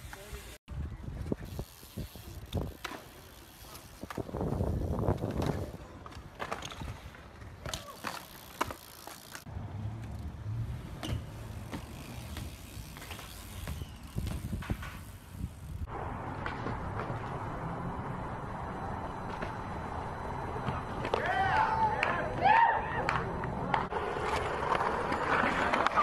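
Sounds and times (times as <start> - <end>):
bikes rolling on concrete: 0.0 - 26.0
bikes knocking on ground: 1.2 - 17.8.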